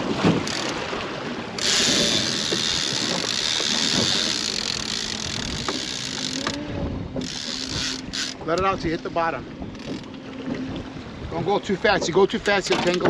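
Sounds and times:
fishing reel spool whirring: 0:00.4 - 0:10.3.

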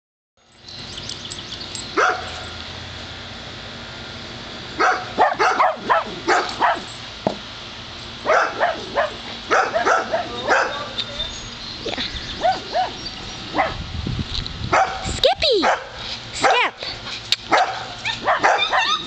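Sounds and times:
dog barking: 0:02.0 - 0:02.4, 0:04.8 - 0:06.9, 0:08.2 - 0:10.9, 0:12.4 - 0:13.8, 0:14.7 - 0:16.7, 0:17.5 - 0:19.0.

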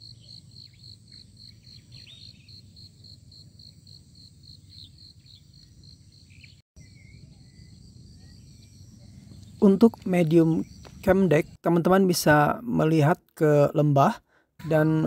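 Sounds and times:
faint bird-like chirps: 0:00.0 - 0:02.7, 0:04.6 - 0:11.1
insect chirping: 0:00.0 - 0:11.6.

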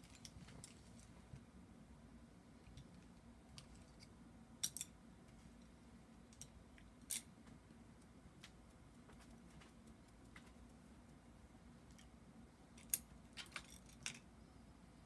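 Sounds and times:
faint low hum: 0:00.0 - 0:15.0
faint clicks and taps: 0:06.4 - 0:11.2.

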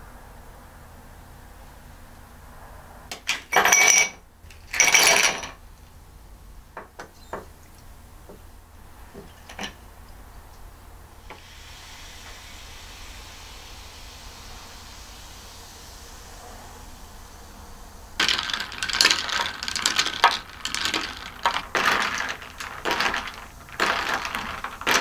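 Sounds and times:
ice and glassware clattering: 0:03.1 - 0:05.6, 0:09.2 - 0:09.8, 0:18.2 - 0:25.0
glass clinks: 0:03.3 - 0:04.2
steady hiss: 0:07.8 - 0:25.0.

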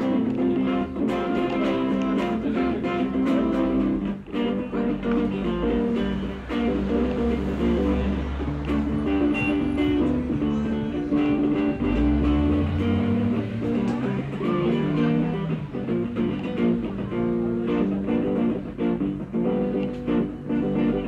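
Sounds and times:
electric guitar: 0:00.0 - 0:21.0.

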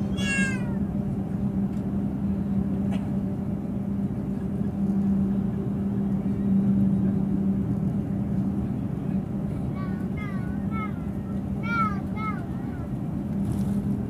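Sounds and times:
aircraft cabin engine hum: 0:00.0 - 0:14.0.

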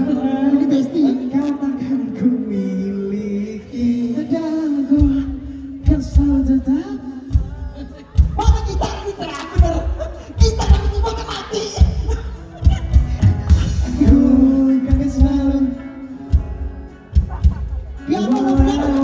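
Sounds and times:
person singing: 0:00.0 - 0:19.0
live band music: 0:03.7 - 0:19.0
heavy drum and bass beats: 0:05.0 - 0:19.0.

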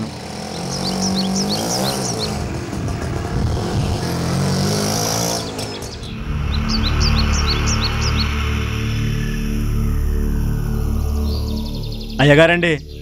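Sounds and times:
small birds chirping: 0:00.0 - 0:13.0
steady low hum: 0:05.7 - 0:13.0.

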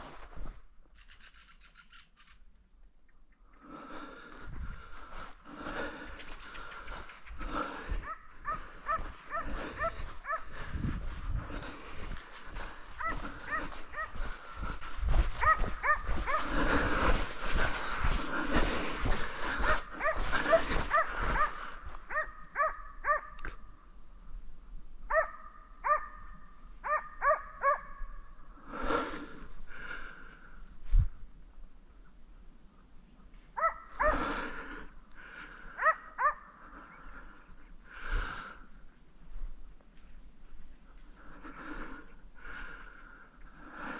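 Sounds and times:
dogs barking: 0:08.0 - 0:10.7, 0:13.0 - 0:14.4, 0:15.4 - 0:16.8, 0:19.5 - 0:23.4, 0:25.1 - 0:28.0, 0:33.6 - 0:34.3, 0:35.8 - 0:36.5.

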